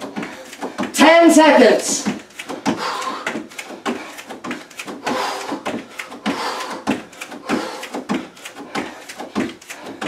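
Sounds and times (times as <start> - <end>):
bare feet thumping on step platform: 0.0 - 10.0.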